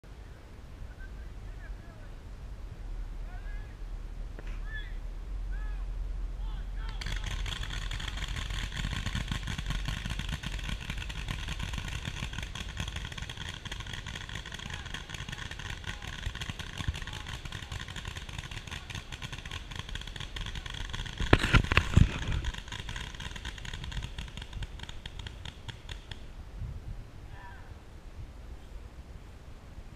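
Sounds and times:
paintball markers firing: 0:06.8 - 0:26.3.

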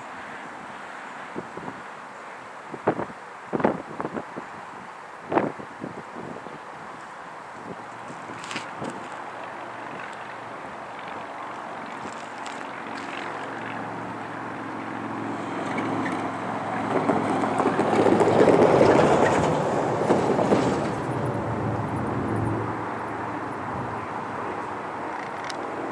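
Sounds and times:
rolling freight cars rumbling: 0:07.0 - 0:25.9
diesel locomotive running: 0:07.4 - 0:25.9.

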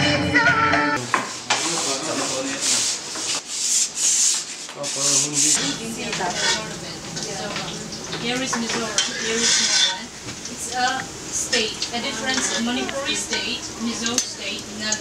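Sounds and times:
wooden pole scraping: 0:09.1 - 0:10.0.

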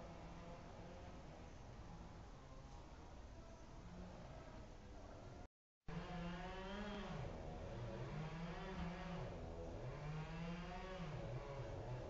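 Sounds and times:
distant chainsaw running: 0:05.9 - 0:12.0.

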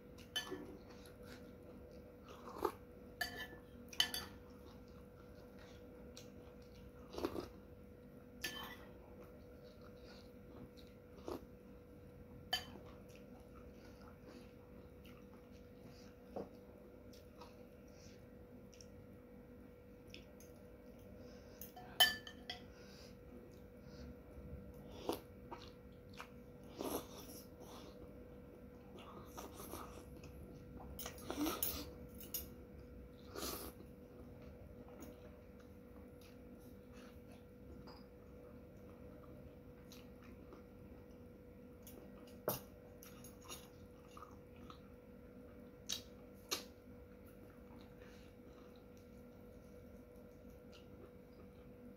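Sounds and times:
faint steady hum: 0:00.0 - 0:51.9
cutlery against ceramic plate: 0:03.2 - 0:04.4, 0:08.4 - 0:08.8, 0:21.6 - 0:22.7
spoon clinking against bowl: 0:03.2 - 0:04.4, 0:21.6 - 0:22.7.

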